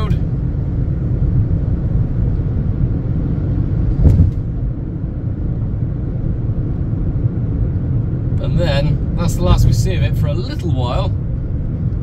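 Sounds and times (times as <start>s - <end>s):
car road and engine rumble: 0.0s - 12.0s
short knock: 4.0s - 4.4s.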